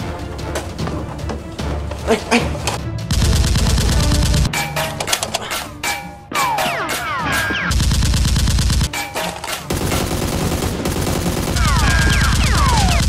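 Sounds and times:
automatic gunfire sound effect: 0:03.1 - 0:04.6, 0:09.7 - 0:13.0.

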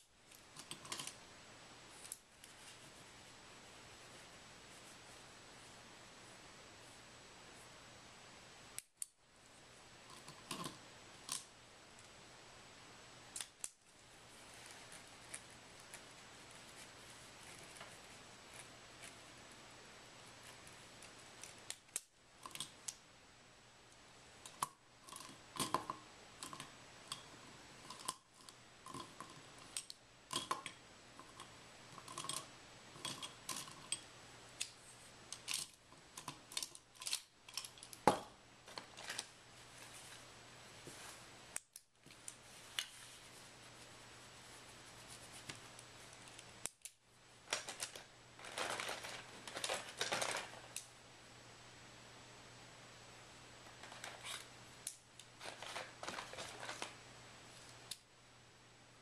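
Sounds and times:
faint low hum: 0:00.0 - 0:59.0
small objects clicking and tapping: 0:00.3 - 0:01.2, 0:10.1 - 0:12.1, 0:20.5 - 0:23.0, 0:24.4 - 0:39.3, 0:45.5 - 0:50.9.

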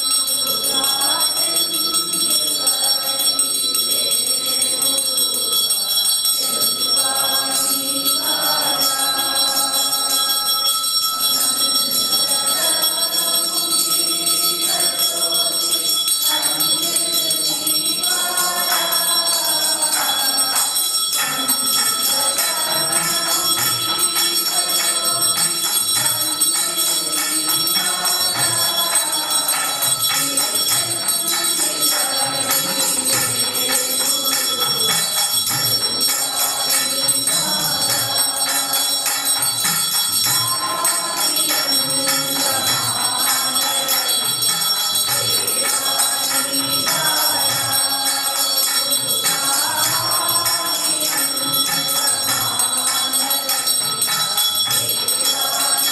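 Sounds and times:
bells ringing: 0:00.0 - 0:55.9
people singing: 0:00.0 - 0:55.9.

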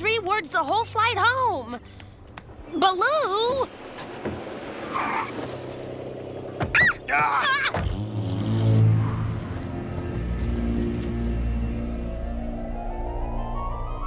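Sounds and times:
low ominous music: 0:00.0 - 0:14.0
cartoon car engine running: 0:05.1 - 0:09.7.

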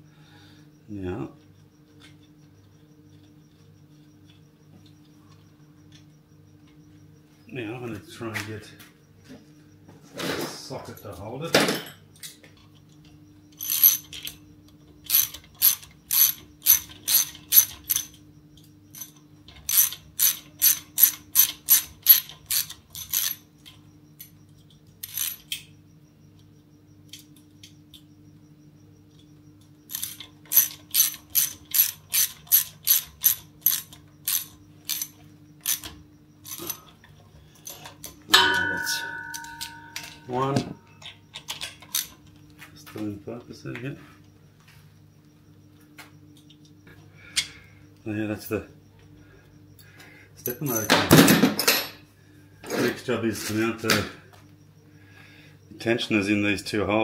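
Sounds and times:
faint steady hum: 0:00.0 - 0:57.0
hand ratchet clicking: 0:13.6 - 0:14.4, 0:15.0 - 0:18.2, 0:18.9 - 0:23.4, 0:25.0 - 0:25.6, 0:29.9 - 0:36.8.

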